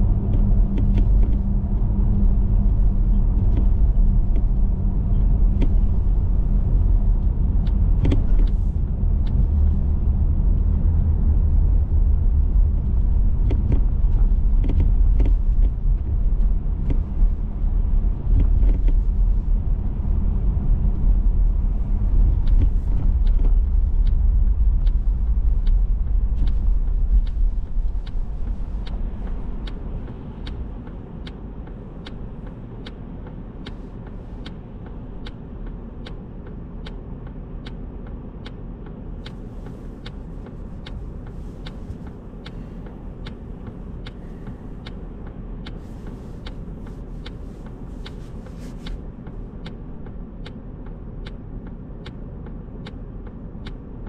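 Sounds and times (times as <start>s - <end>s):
car road and engine rumble: 0.0s - 54.0s
turn signal ticking: 0.0s - 54.0s.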